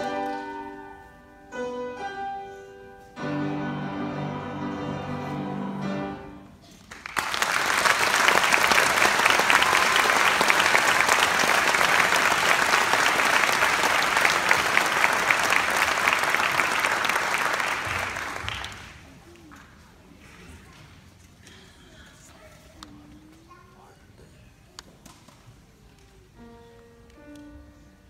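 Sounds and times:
audience applause: 6.8s - 19.2s.

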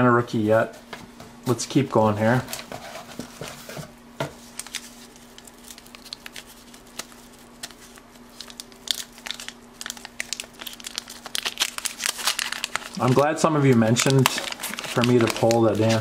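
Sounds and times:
wax paper wrapper crinkling: 4.4s - 16.0s.

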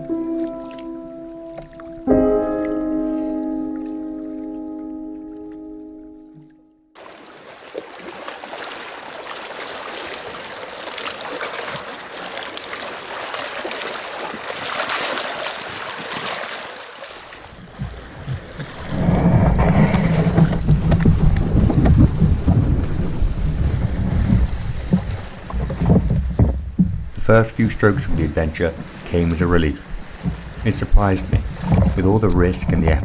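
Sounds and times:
water lapping at shore: 0.0s - 33.0s
water sloshing around kayak hull: 0.0s - 33.0s
wind rumble on microphone: 17.5s - 33.0s.

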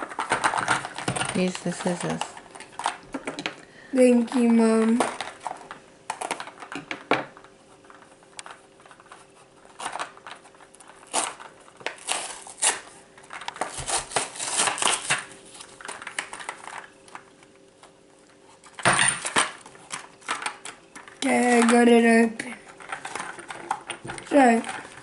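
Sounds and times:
plastic pack crackling and thump: 0.0s - 3.6s, 4.2s - 18.0s, 18.8s - 25.0s
scissors cutting plastic: 9.7s - 16.8s.

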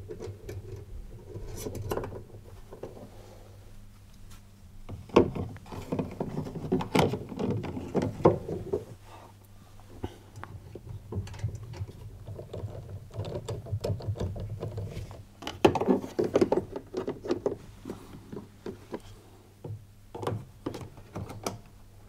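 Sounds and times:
plastic parts clicking and rattling: 5.1s - 8.8s, 10.4s - 19.1s.

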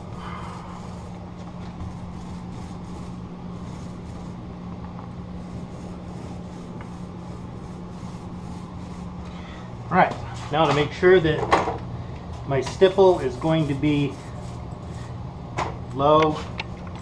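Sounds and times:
paint roller rubbing: 0.0s - 9.5s, 12.5s - 15.2s
steady low hum: 0.0s - 17.0s.

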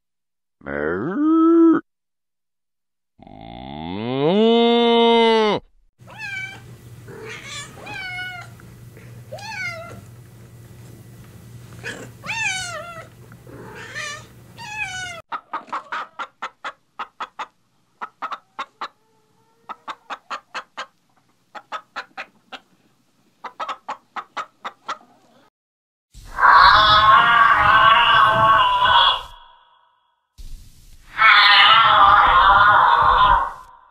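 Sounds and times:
cat meowing: 6.1s - 8.5s, 9.3s - 10.0s, 11.8s - 15.2s, 31.1s - 33.5s
chickens clucking: 15.3s - 25.5s.

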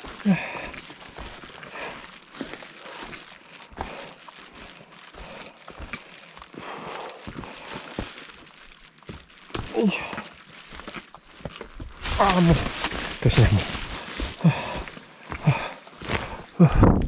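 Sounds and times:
small bell ringing: 0.0s - 3.4s, 4.6s - 17.0s
footsteps and scuffs on trail: 0.0s - 17.0s.

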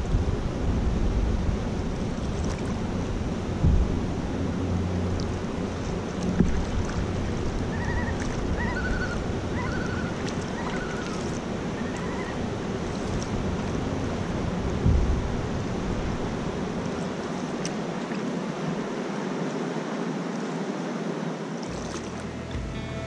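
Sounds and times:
wind on microphone: 0.0s - 22.1s
water washing along hull: 0.0s - 22.6s
dull knocks: 3.6s - 4.0s, 14.8s - 15.3s
bird chirping: 7.7s - 11.0s.

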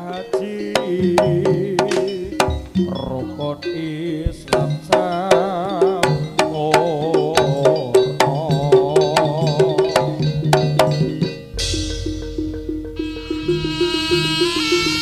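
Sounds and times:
low gamelan notes: 0.0s - 15.0s
vibrato melody: 0.0s - 15.0s
hand drum strokes: 0.4s - 15.0s
loud crash: 11.5s - 13.0s.

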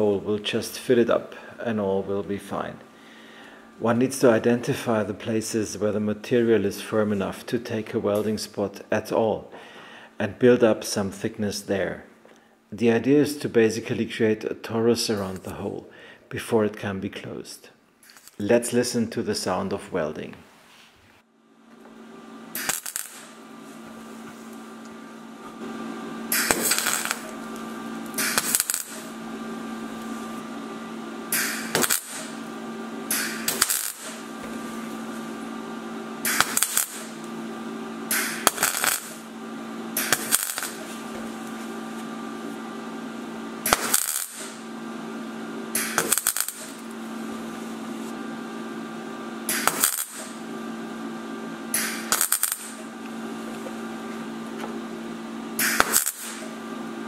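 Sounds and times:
steady hum: 0.0s - 20.4s, 21.2s - 57.0s
welder crackling bursts: 15.0s - 15.6s, 18.0s - 18.6s, 21.8s - 54.1s, 55.0s - 57.0s.

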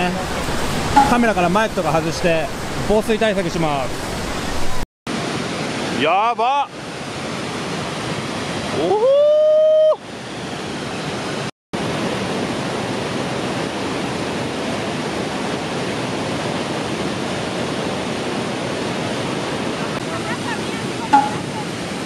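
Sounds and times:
waterfall rushing: 0.0s - 6.1s, 17.4s - 22.0s.

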